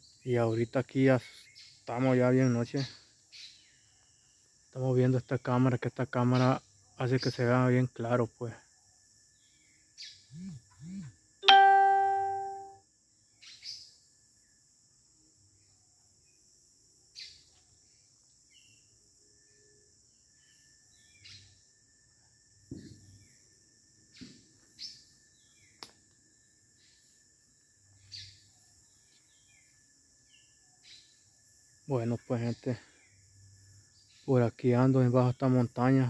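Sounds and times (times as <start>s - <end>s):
insects droning: 0.0s - 36.0s
bird chirps: 9.3s - 12.8s, 20.4s - 21.7s, 27.8s - 31.3s
ringing tone: 11.4s - 12.8s.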